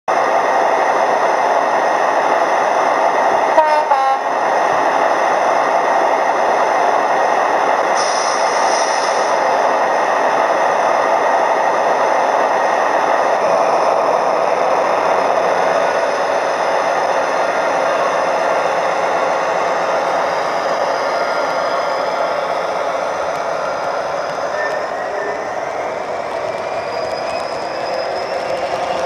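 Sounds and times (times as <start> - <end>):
two-tone horn: 3.6 - 4.3
brief high hiss: 8.0 - 9.4.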